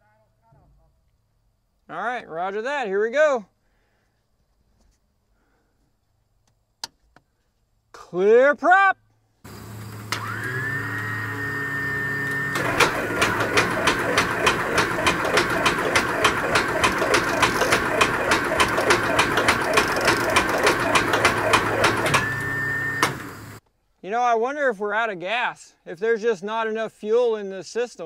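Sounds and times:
electric starter whine: 9.5 - 23.6
engine cranking without firing: 9.5 - 23.6.

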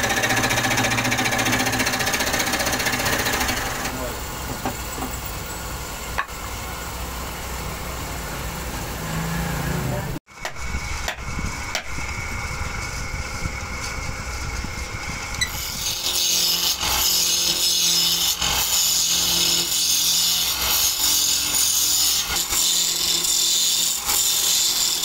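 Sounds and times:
chisel scraping wood on lathe: 0.0 - 5.2
faint motor hum: 0.0 - 23.3.

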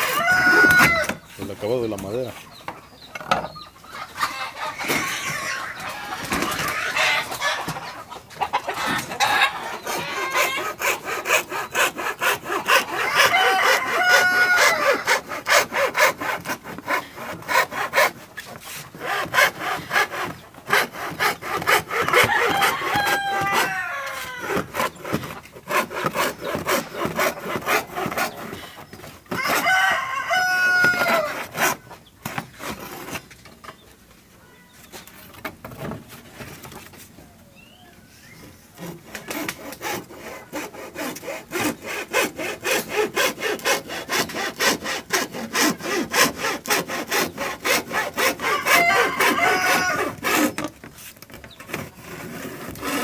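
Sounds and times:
rooster crowing: 0.0 - 1.2, 12.9 - 15.1, 22.0 - 24.6, 29.3 - 31.4, 48.4 - 50.2
hacksaw cutting plywood: 8.7 - 33.4, 38.8 - 53.0.

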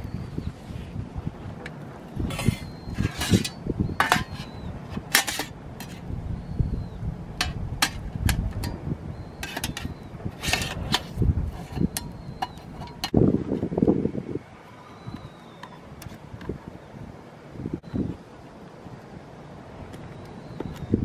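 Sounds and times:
metal panels clicking and clacking: 5.0 - 6.0.

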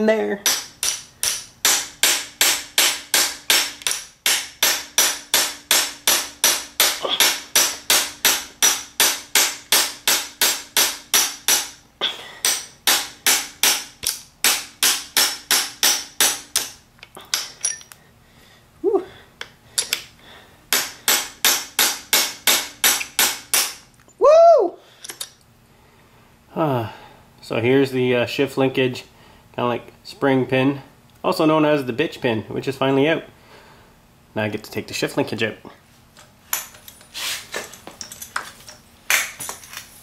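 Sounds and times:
hammer striking steel punch: 0.4 - 11.8, 12.4 - 18.0, 20.7 - 23.8.

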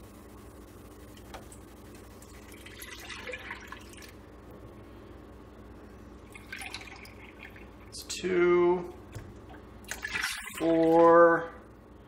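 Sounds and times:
milk pouring into a pot: 2.3 - 4.2, 6.3 - 8.0.

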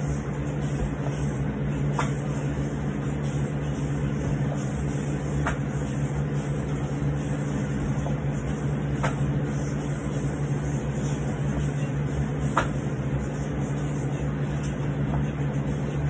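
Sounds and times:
steady machine hum: 0.0 - 16.0
sharp slap: 1.9 - 2.2, 5.4 - 5.7, 9.0 - 9.3, 12.6 - 12.8.

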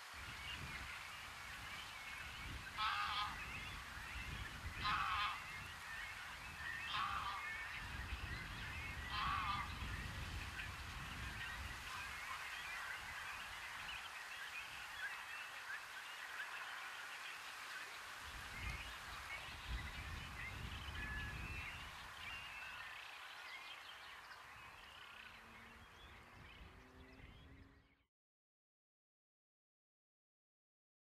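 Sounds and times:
birdsong: 0.0 - 28.1
goose honking: 2.8 - 3.4, 4.8 - 5.4, 6.9 - 7.4, 9.1 - 9.8.

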